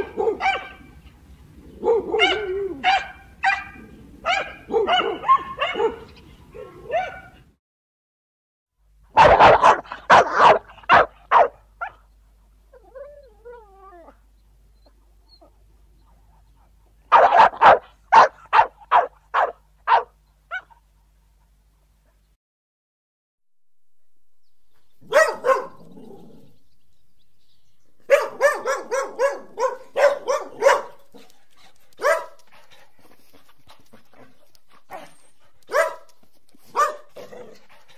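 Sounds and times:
dog barking: 0:00.0 - 0:00.9, 0:01.8 - 0:07.4, 0:09.1 - 0:12.0, 0:17.1 - 0:20.8, 0:25.0 - 0:25.9, 0:28.1 - 0:31.3, 0:32.0 - 0:32.4, 0:35.7 - 0:36.1, 0:36.7 - 0:37.6
dog whining: 0:12.8 - 0:14.2.

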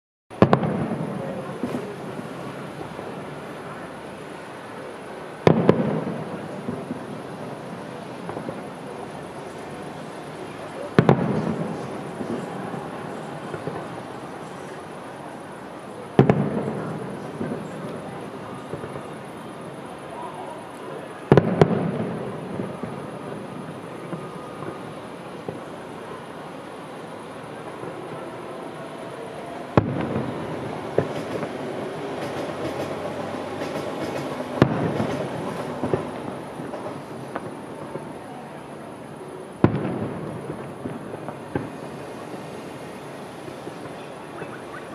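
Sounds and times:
firework bangs: 0:00.3 - 0:44.9
fireworks crackling: 0:00.3 - 0:44.9
steady background noise: 0:00.3 - 0:44.9
smaller firework bang: 0:00.4 - 0:02.2, 0:05.4 - 0:07.1, 0:10.9 - 0:12.8, 0:16.2 - 0:18.0, 0:21.3 - 0:24.8, 0:29.8 - 0:31.5, 0:33.7 - 0:38.1, 0:39.6 - 0:41.8.

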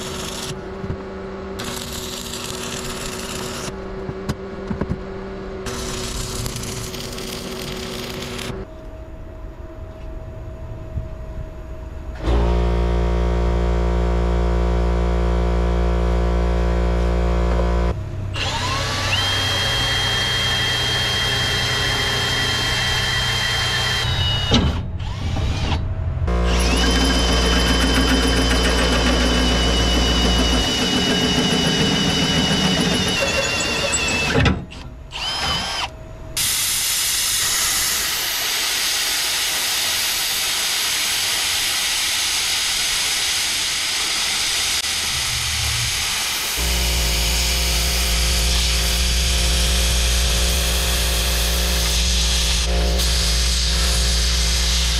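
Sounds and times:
power drill boring into steel: 0:18.4 - 0:25.8, 0:26.4 - 0:41.5
plasma cutter hissing: 0:36.4 - 0:54.9.

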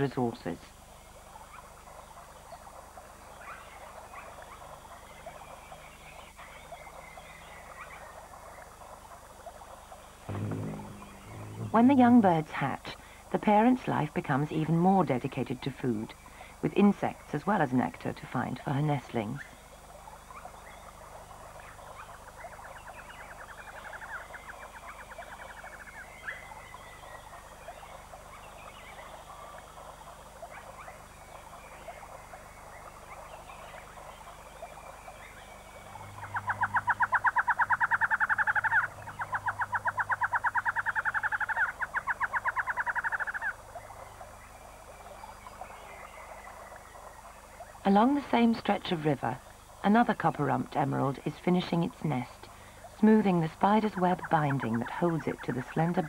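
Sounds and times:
animal chirps and calls: 0:33.1 - 0:44.3.

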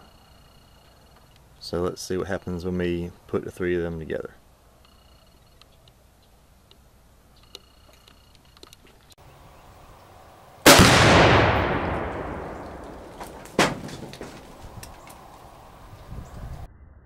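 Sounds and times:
explosion with rumble: 0:10.7 - 0:14.1
short sharp crack: 0:10.7 - 0:15.2.

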